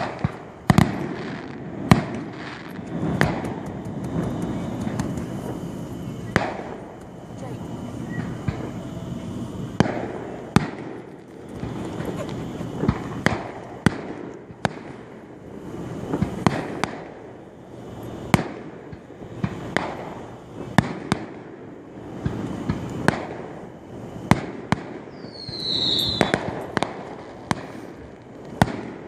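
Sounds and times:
continuous rumble: 0.0s - 29.0s
fireworks shells bursting: 0.0s - 29.0s
high falling whistle: 25.2s - 26.4s.

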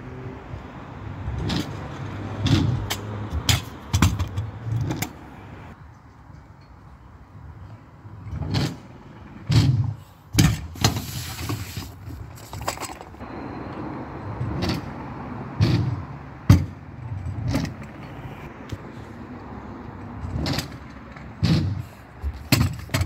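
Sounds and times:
scooter knocking and rattling: 1.3s - 5.2s, 8.3s - 15.0s, 15.6s - 18.2s, 20.0s - 23.0s
scooter wheels rolling: 1.3s - 5.2s, 8.3s - 15.0s, 20.0s - 23.0s.

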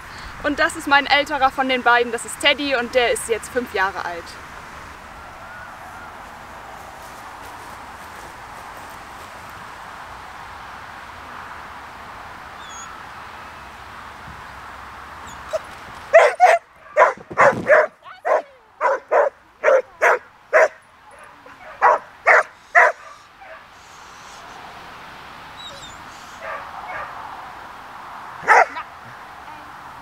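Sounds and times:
dog barking: 15.5s - 23.7s, 26.4s - 27.2s, 28.4s - 28.9s.

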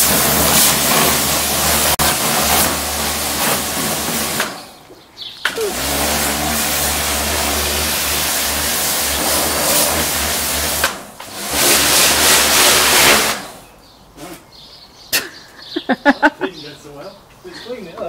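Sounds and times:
pressure washer motor humming: 0.0s - 4.8s, 5.4s - 13.6s
spray jet hissing: 0.0s - 4.8s, 5.5s - 13.6s.

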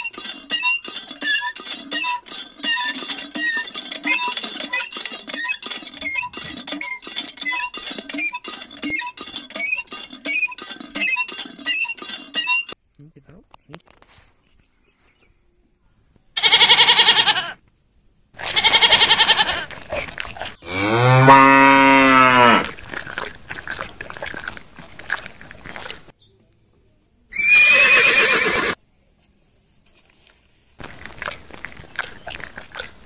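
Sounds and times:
wavering bleats: 16.4s - 17.6s, 18.4s - 19.8s
cow mooing: 20.6s - 22.7s.

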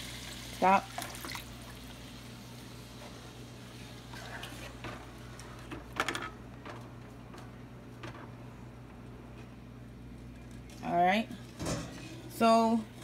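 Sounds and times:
water hissing in hot oil: 0.0s - 4.2s.

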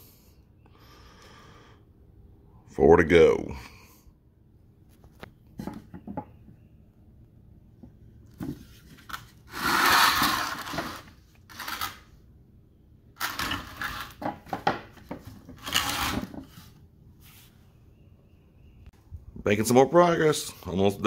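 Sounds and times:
scraping and rubbing noise: 8.5s - 12.1s, 15.1s - 17.6s.

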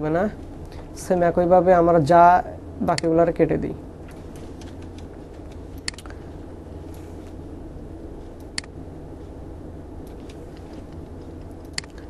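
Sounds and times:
steady low hum: 0.0s - 12.0s
mouse and keyboard clicks: 5.8s - 6.1s, 11.6s - 12.0s.

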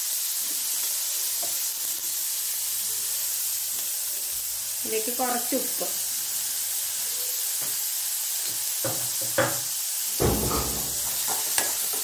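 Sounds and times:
shallots sizzling in oil: 0.0s - 12.0s
spoon scraping and knocking pan: 8.4s - 12.0s.

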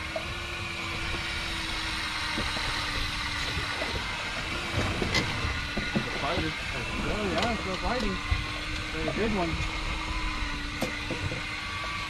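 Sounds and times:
outboard motor idling: 0.0s - 12.0s
wind and sea noise: 0.0s - 12.0s.

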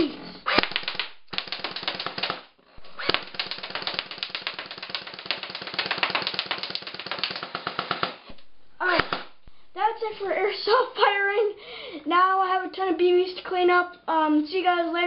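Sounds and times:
airsoft gun automatic bursts: 0.5s - 8.3s
pellets clattering on targets: 0.6s - 9.5s.

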